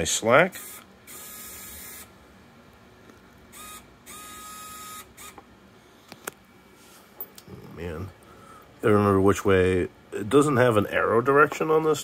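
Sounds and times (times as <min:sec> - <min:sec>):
electric winch motor whirring: 0:00.5 - 0:02.1, 0:03.5 - 0:05.4.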